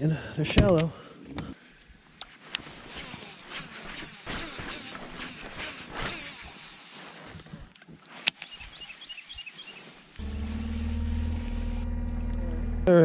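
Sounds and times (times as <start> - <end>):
jacket and gear rustling: 1.6 - 10.8
steady low hum: 10.2 - 13.0.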